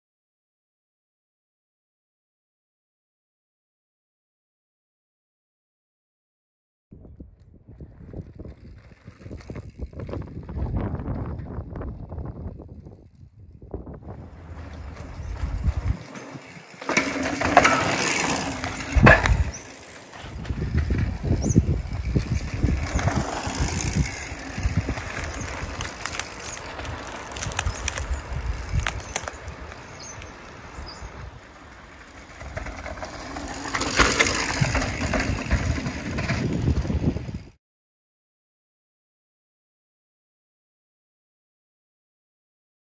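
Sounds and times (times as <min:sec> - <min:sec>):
bike rattling and knocking: 0:07.7 - 0:13.2, 0:14.2 - 0:30.4, 0:31.7 - 0:37.6
rumbling: 0:07.7 - 0:29.4
tyres crunching over dirt: 0:14.0 - 0:30.5, 0:31.4 - 0:37.2.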